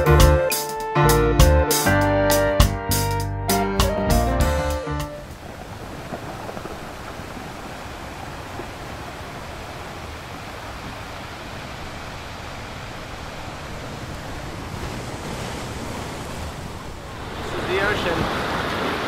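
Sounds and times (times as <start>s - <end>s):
ocean surf rushing: 5.0s - 19.0s.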